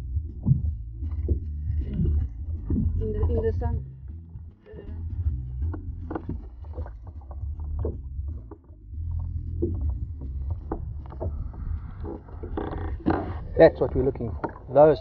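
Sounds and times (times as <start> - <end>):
low rumble: 0.0 - 15.0
water lapping against boat hull: 0.0 - 15.0
water splashes: 6.0 - 15.0.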